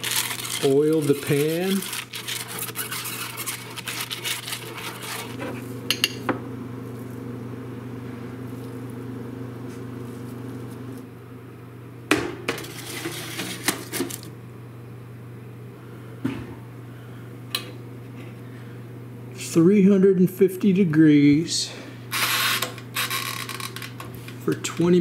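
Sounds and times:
brush crinkling foil: 0.0s - 5.6s, 12.6s - 14.3s
steady low hum: 0.0s - 25.0s.

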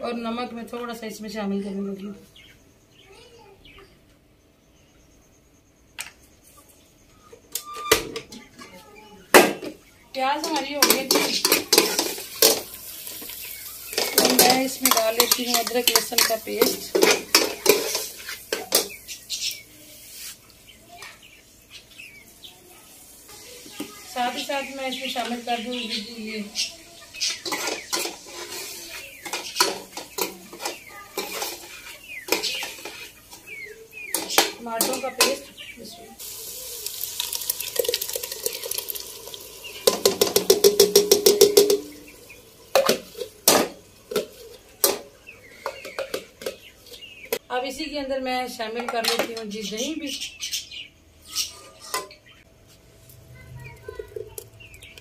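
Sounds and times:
faint bird chirps: 2.2s - 10.2s
sauce sizzling in a pot: 10.8s - 20.7s, 22.3s - 34.8s, 36.1s - 44.5s
metal spoon scraping a bowl: 27.4s - 33.1s.

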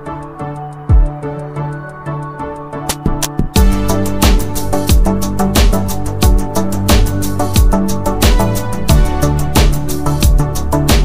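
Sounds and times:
deep kick drum: 3.5s - 11.0s.

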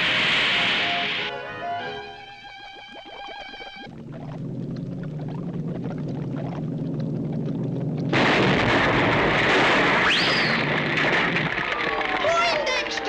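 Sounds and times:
low cartoon rumble: 1.8s - 11.8s
cartoon explosion: 8.1s - 11.8s
whistle rising and falling: 10.0s - 10.7s.

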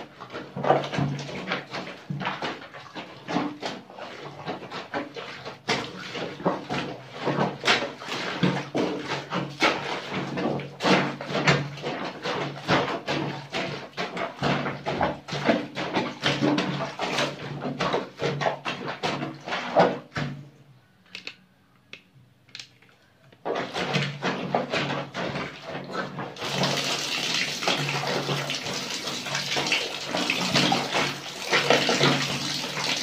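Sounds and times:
wet laundry sloshing and squelching: 0.0s - 21.0s, 23.0s - 33.0s.

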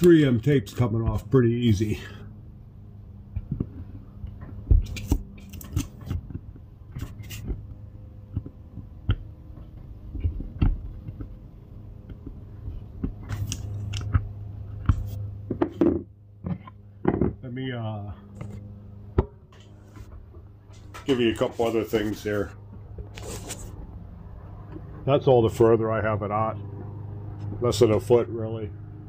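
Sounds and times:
steady low hum: 0.0s - 29.0s
rubber seal pulled and scraped: 4.8s - 7.6s.

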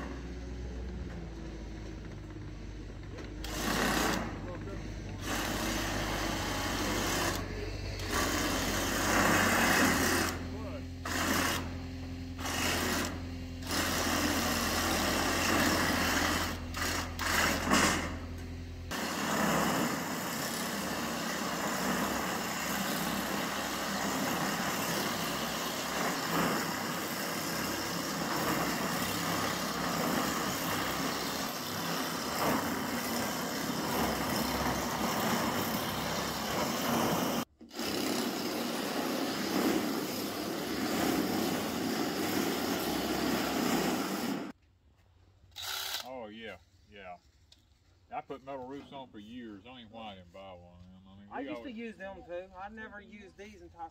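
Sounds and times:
drill-mounted shear cutting steel: 3.4s - 44.5s, 45.5s - 46.1s.

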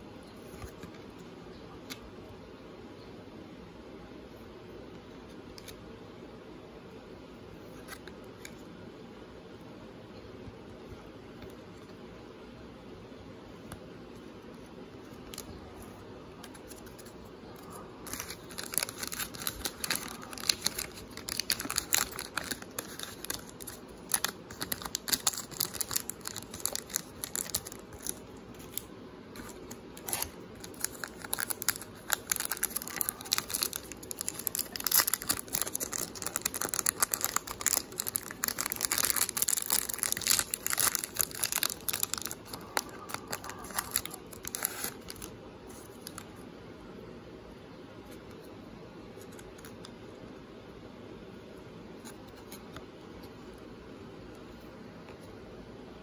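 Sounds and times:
card pack wrappers crinkling: 16.4s - 46.3s.

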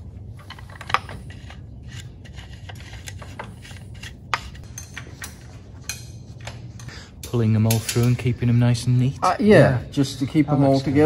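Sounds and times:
steady low hum: 0.0s - 11.0s
metal parts clicking and clinking: 0.3s - 8.6s.

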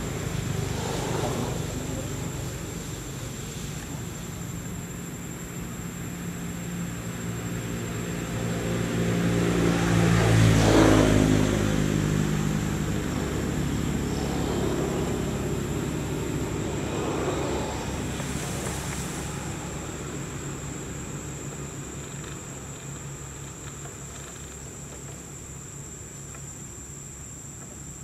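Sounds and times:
vehicle engine driving past: 0.0s - 3.6s, 8.2s - 21.9s.

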